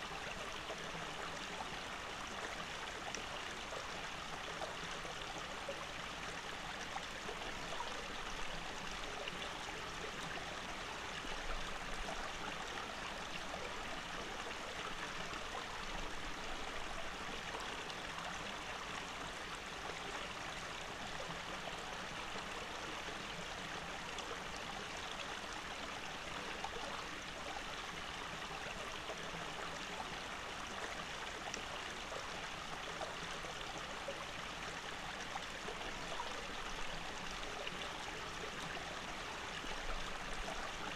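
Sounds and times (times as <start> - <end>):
stream running over stones: 0.0 - 40.9.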